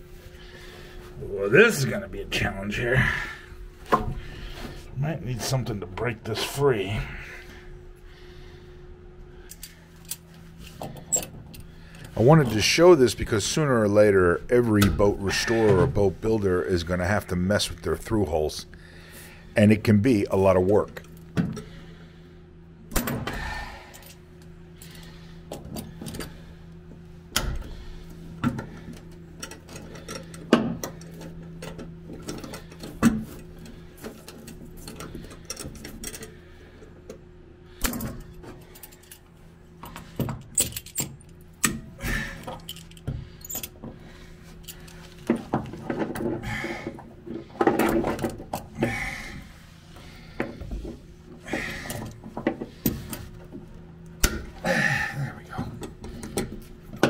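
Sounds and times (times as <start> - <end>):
steady low hum: 0.0 - 57.0
metal pliers clicking and rattling: 42.4 - 43.8.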